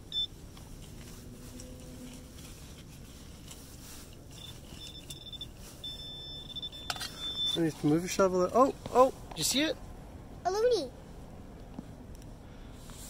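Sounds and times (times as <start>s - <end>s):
metal detector beeps: 0.1s - 0.3s, 4.3s - 7.9s.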